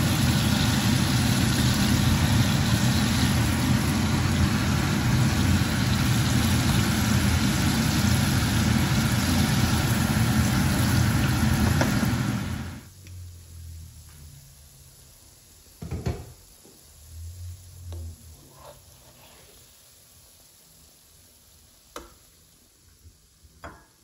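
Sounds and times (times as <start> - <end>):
extractor fan running: 0.0 - 13.8.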